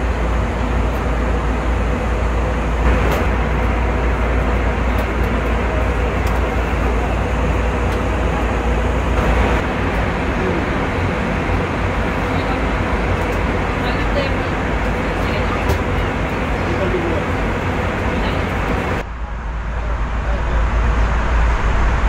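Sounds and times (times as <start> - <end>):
airliner cabin noise: 0.0 - 22.0
deep rumble: 0.0 - 22.0.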